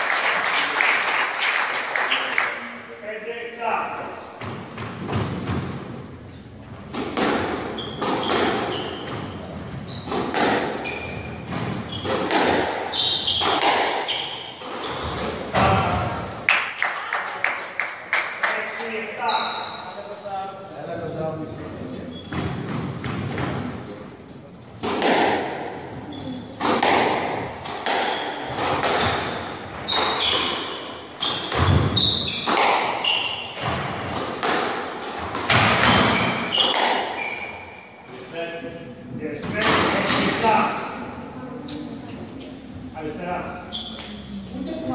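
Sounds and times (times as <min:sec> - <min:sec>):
shoes squeaking on wooden floor: 0:04.2 - 0:15.6, 0:19.2 - 0:20.0, 0:21.6 - 0:23.6, 0:25.8 - 0:38.3, 0:43.5 - 0:44.5
squash ball hits echoing: 0:04.4 - 0:06.0, 0:06.8 - 0:16.3, 0:24.8 - 0:37.9, 0:39.4 - 0:40.8
squash ball knocks: 0:10.1 - 0:10.8, 0:11.5 - 0:14.0, 0:24.8 - 0:25.7, 0:26.6 - 0:29.4, 0:31.4 - 0:33.0, 0:33.6 - 0:37.2.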